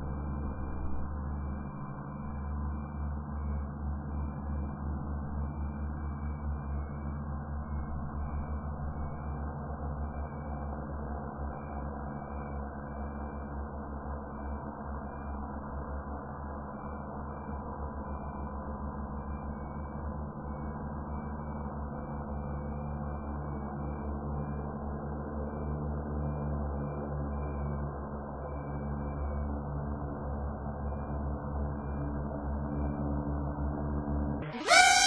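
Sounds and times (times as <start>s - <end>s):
drone hovering: 0.0s - 11.9s, 34.4s - 35.0s.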